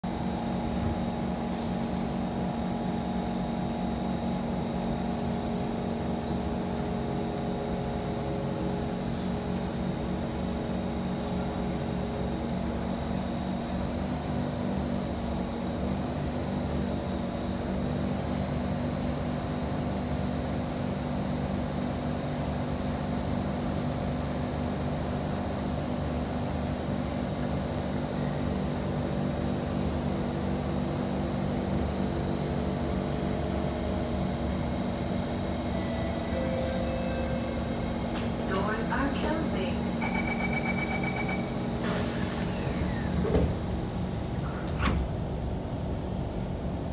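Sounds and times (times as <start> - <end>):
train equipment hum: 0.0 - 46.9
faint high whine: 34.6 - 43.0.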